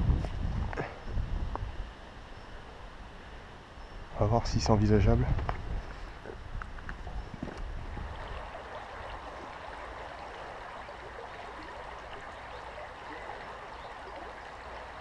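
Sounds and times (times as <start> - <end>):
river water flowing: 7.6 - 15.0.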